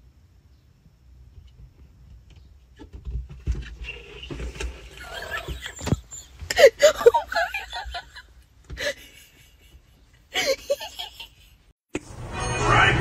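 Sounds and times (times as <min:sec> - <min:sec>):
person laughing: 0:05.0 - 0:11.6.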